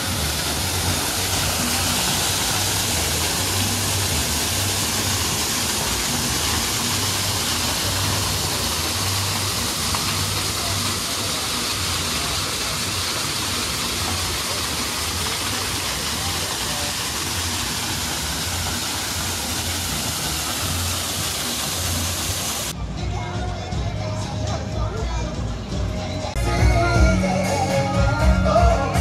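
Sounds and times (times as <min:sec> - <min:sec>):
waterfall splashing over rocks: 0:00.0 - 0:22.8.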